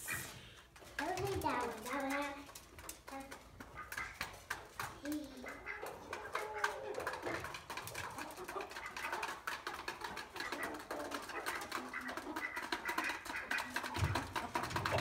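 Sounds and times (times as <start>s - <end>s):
chickens and ducks calling: 0.0s - 0.8s, 1.5s - 15.0s.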